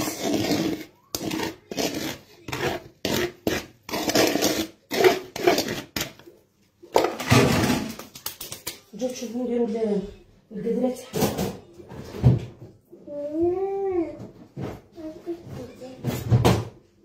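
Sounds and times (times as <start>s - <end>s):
flatbread being grated: 0.0s - 6.2s.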